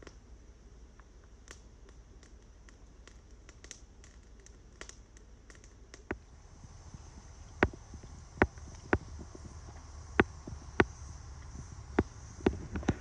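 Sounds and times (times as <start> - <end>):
campfire crackling: 0.0 - 13.0
loud pop from fire: 4.8 - 13.0.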